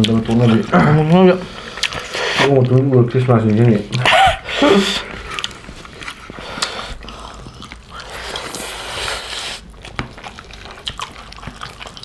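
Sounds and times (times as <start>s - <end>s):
chewing and lip-smacking: 0.0s - 4.1s, 4.7s - 12.0s
noisy breath or slurp: 1.4s - 2.6s, 4.5s - 9.7s.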